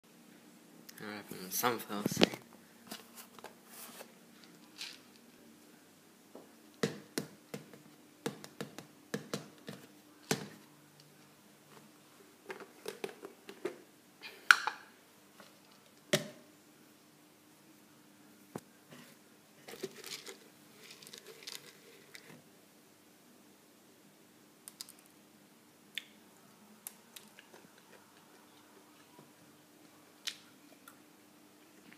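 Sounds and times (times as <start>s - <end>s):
faint steady hum: 0.0s - 31.9s
hands handling seeds and container: 2.0s - 5.3s, 19.6s - 22.4s.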